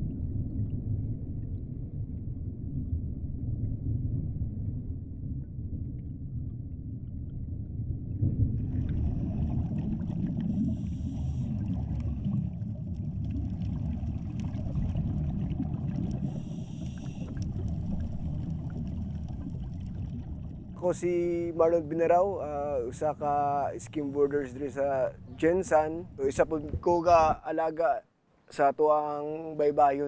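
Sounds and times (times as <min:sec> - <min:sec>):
low underwater rumble: 0:00.0 - 0:28.0
regulator bubbles rushing: 0:05.7 - 0:27.9.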